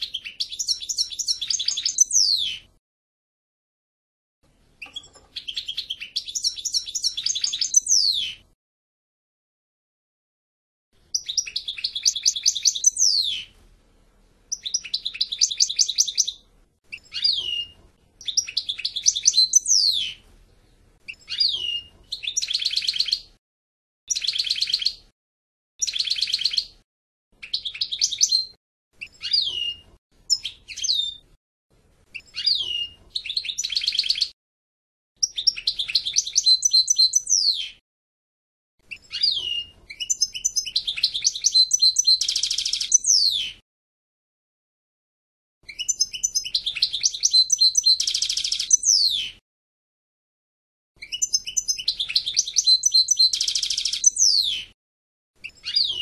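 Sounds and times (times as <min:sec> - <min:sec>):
bird singing rapid twittering: 0:00.0 - 0:02.6, 0:04.8 - 0:08.4, 0:11.1 - 0:13.5, 0:14.5 - 0:20.2, 0:21.1 - 0:23.3, 0:24.1 - 0:25.1, 0:25.8 - 0:26.8, 0:27.4 - 0:31.2, 0:32.2 - 0:34.4, 0:35.2 - 0:37.8, 0:38.9 - 0:43.6, 0:45.7 - 0:49.4, 0:51.0 - 0:54.7.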